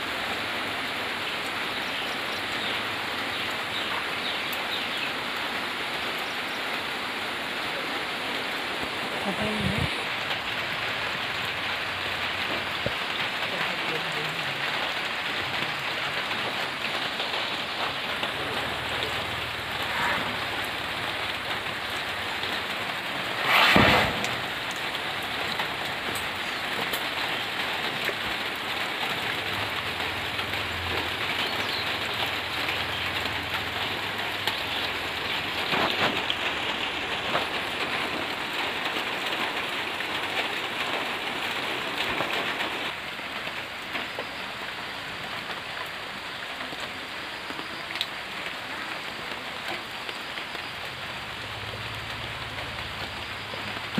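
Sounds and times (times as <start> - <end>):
steady rain falling: 0.0 - 53.9
loud burst of noise: 23.2 - 25.4.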